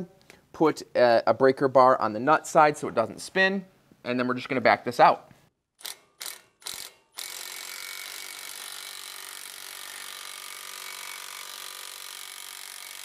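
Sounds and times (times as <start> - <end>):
impact wrench running: 5.8 - 13.0.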